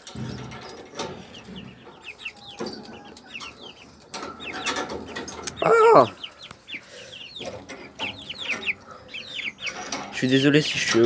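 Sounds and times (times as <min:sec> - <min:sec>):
wire cage door clicks: 0:00.0 - 0:01.6, 0:02.3 - 0:05.7
chickens peeping: 0:00.0 - 0:11.0
loud wavering chicken call: 0:05.5 - 0:07.3.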